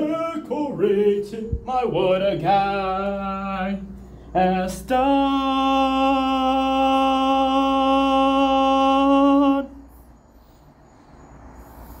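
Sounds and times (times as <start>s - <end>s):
person singing a long note: 0.6s - 9.8s
faint hiss: 9.0s - 12.0s.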